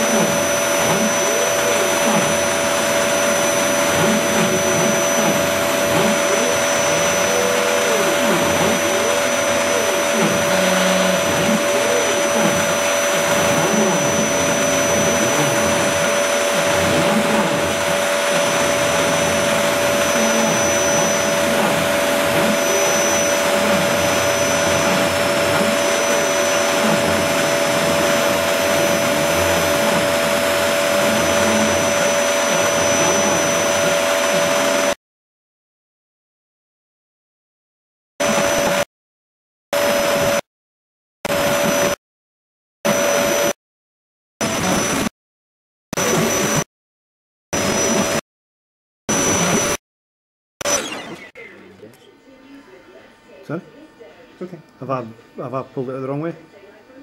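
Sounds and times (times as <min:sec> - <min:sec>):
motor whines rising and falling: 0:00.0 - 0:35.0, 0:38.2 - 0:38.9, 0:39.8 - 0:40.4, 0:41.3 - 0:42.0, 0:42.9 - 0:43.6, 0:44.4 - 0:45.1, 0:46.0 - 0:46.7, 0:47.6 - 0:48.2, 0:49.1 - 0:49.8, 0:50.6 - 0:51.9
router whirring hum with whine: 0:00.0 - 0:35.0, 0:38.2 - 0:38.9, 0:39.8 - 0:40.5, 0:41.3 - 0:42.0, 0:42.9 - 0:43.6, 0:44.4 - 0:45.1, 0:46.0 - 0:46.7, 0:47.6 - 0:48.2, 0:49.1 - 0:49.8, 0:50.6 - 0:57.0.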